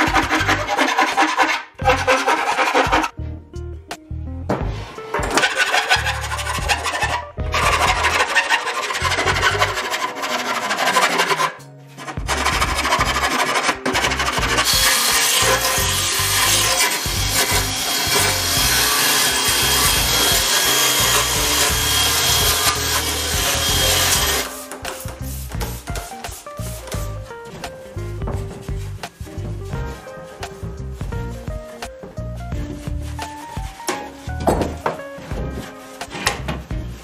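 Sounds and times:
hand file rasping on metal: 0.0 - 3.1, 5.3 - 27.6.

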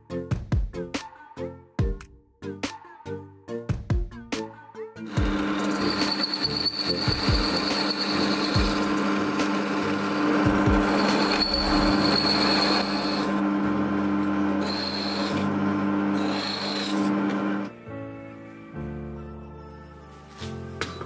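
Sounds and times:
drill bit cutting noise: 5.1 - 17.7
drill press motor hum: 5.1 - 17.7
high whine of drill bit: 5.1 - 17.7.

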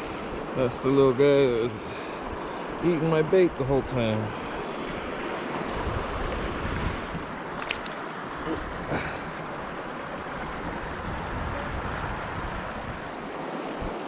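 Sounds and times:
river water rushing over rocks: 3.9 - 14.0.

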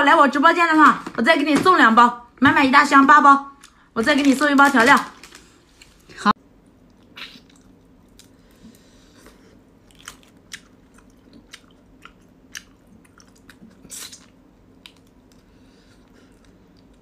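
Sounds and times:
person biting and chewing: 9.8 - 15.4.

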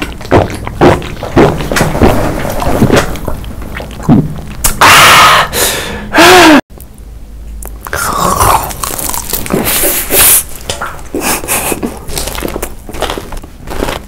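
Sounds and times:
breathy gasp: 5.2 - 6.2
person gulping a drink: 7.6 - 10.2, 10.8 - 14.0.

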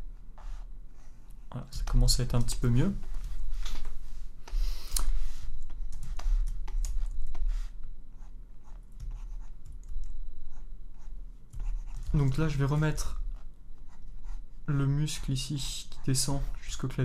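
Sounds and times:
low electrical hum: 0.0 - 17.0
stylus scratching on tablet: 3.5 - 9.7, 10.4 - 13.1, 13.8 - 16.7.

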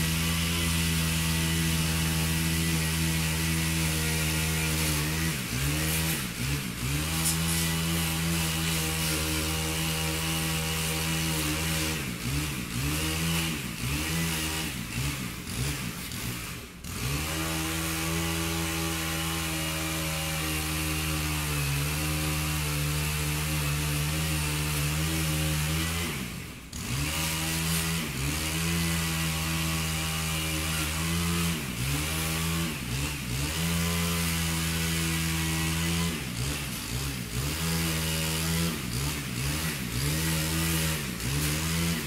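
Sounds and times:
chainsaw running: 0.0 - 42.0.

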